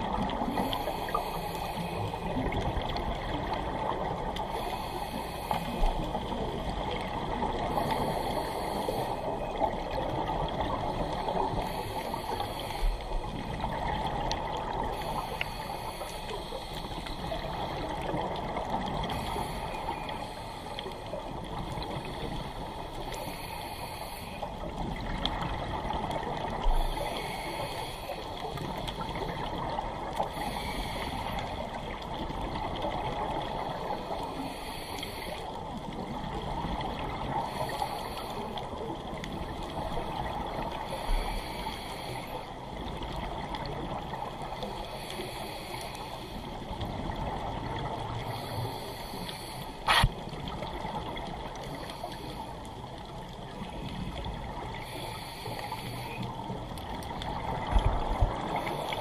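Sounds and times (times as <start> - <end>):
diver breathing through regulator: 0.4 - 2.4, 4.5 - 6.2, 7.7 - 9.4, 11.0 - 13.4, 14.9 - 17.8, 19.0 - 21.1, 21.8 - 24.6, 26.7 - 29.3, 30.2 - 31.6, 34.0 - 35.5, 37.4 - 38.6, 40.8 - 42.5, 44.8 - 46.6, 48.2 - 50.2, 54.8 - 56.4.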